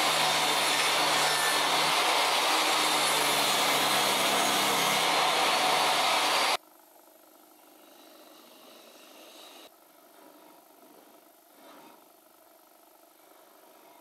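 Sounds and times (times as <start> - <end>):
table saw cutting wood: 0.0 - 6.6.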